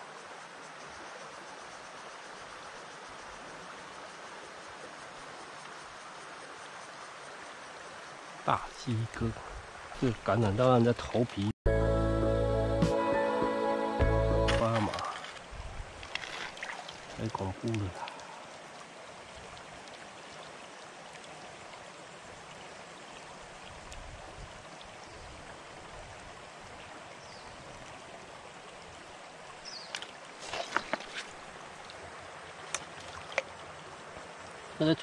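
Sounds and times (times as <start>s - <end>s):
stream flowing over rocks: 12.9s - 35.0s.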